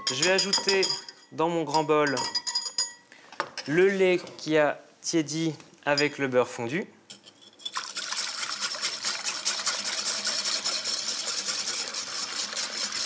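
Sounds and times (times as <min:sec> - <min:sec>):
whisk beating in glass bowl: 0:07.7 - 0:13.0.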